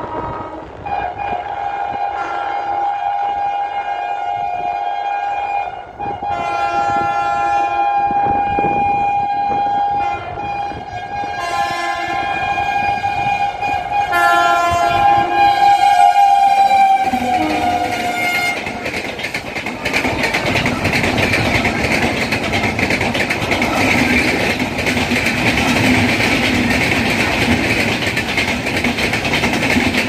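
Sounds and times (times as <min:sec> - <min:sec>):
electric train horn blasts: 0:00.0 - 0:18.9
approaching train running noise: 0:00.0 - 0:30.0.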